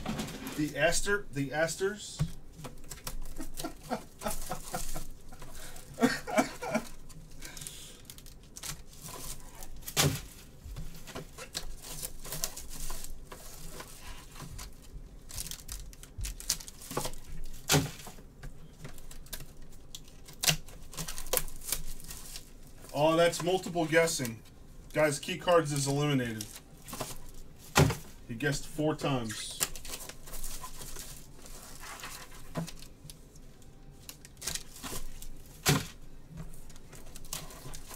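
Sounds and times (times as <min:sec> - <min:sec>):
plastic wrap crinkling: 0:00.0 - 0:37.9
cardboard tearing and scraping: 0:02.6 - 0:06.9, 0:08.0 - 0:10.5, 0:11.2 - 0:18.1, 0:29.6 - 0:32.9, 0:36.7 - 0:37.9.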